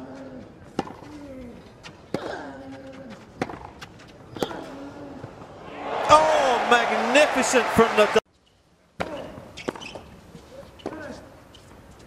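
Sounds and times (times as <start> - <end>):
players grunting: 4.7 - 8.2.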